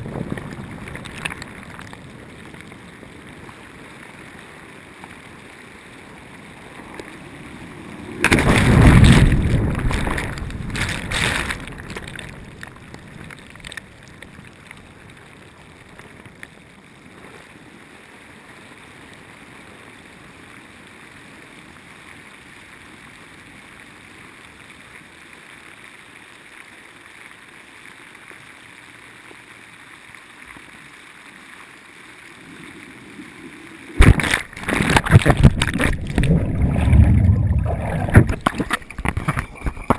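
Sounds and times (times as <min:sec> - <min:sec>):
churning water muffled: 0:00.0 - 0:16.0, 0:32.2 - 0:39.9.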